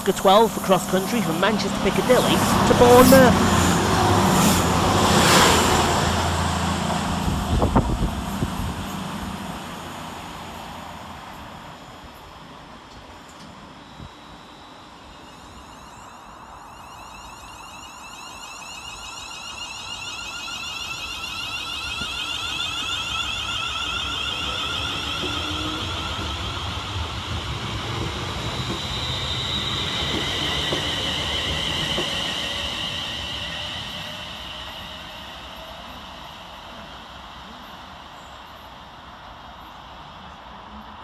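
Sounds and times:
wheels rumbling on rails: 0.0s - 16.8s, 20.8s - 41.0s
train motors whining: 14.9s - 36.4s.

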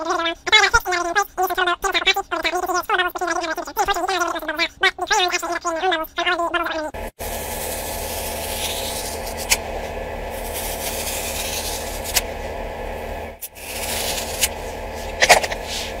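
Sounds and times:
blade cutting thread spool: 7.2s - 15.7s.

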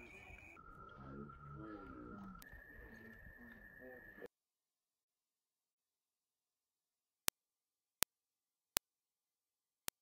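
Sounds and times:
faint muffled voice: 0.0s - 4.3s
high electronic tone: 0.0s - 4.3s.

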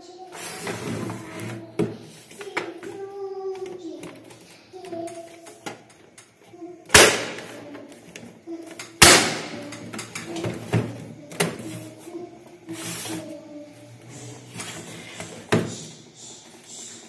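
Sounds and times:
plastic scrape: 0.3s - 1.6s, 12.7s - 13.3s.

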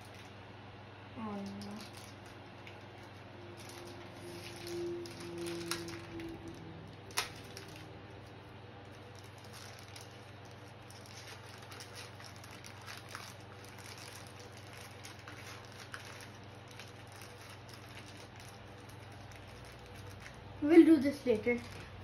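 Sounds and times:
plastic packaging rustling and clicking: 1.3s - 20.5s, 21.2s - 22.0s.

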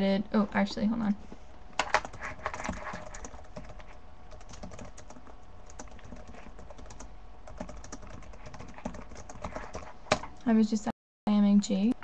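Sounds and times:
computer keyboard typing: 1.8s - 10.3s.

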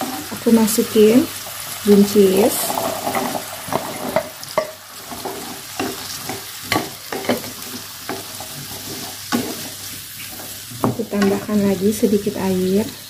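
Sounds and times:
beans sizzling in hot oil: 0.0s - 13.0s
wooden spatula scraping a wok: 2.5s - 11.7s.

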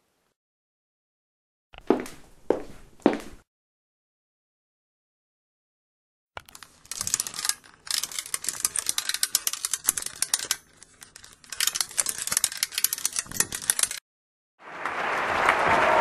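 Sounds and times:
ratcheting clicks of curtain winding: 6.4s - 14.0s.

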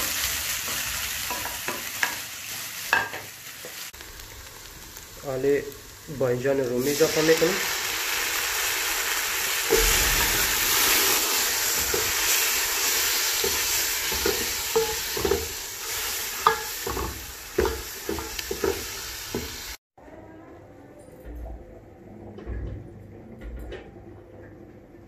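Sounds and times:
vegetables sizzling in hot oil: 0.0s - 19.8s
wooden spoon knocking on pot: 16.4s - 19.6s.

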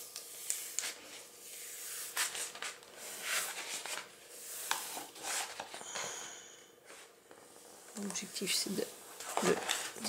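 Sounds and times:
plastic mat crackling: 7.9s - 10.0s.

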